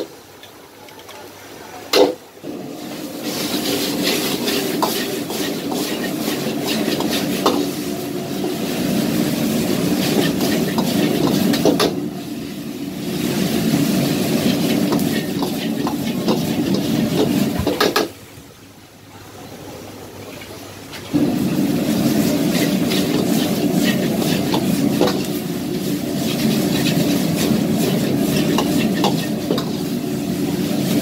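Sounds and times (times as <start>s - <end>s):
food sizzling in a wok: 2.4s - 18.1s, 21.1s - 31.0s
gas burner roar: 2.4s - 18.1s, 21.1s - 31.0s
metal ladle scraping a wok: 3.2s - 8.7s, 22.4s - 30.0s.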